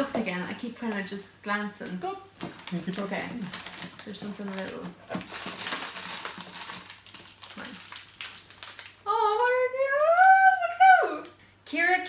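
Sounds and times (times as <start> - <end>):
plastic candy packet crinkling: 1.8 - 11.4
high-pitched vocal sound: 9.0 - 11.4.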